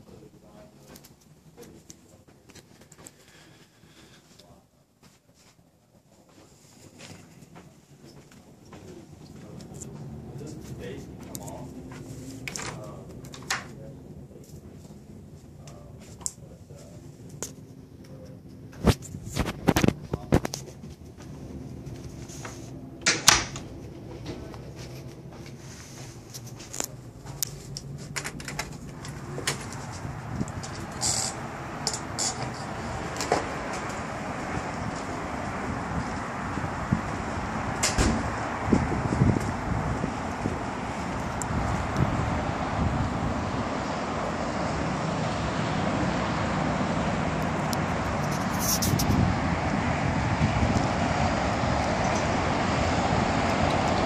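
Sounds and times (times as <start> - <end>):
road traffic noise: 0.0 - 4.8, 5.4 - 54.0
footsteps: 23.4 - 37.2, 48.0 - 49.2
wind on microphone: 27.6 - 54.0.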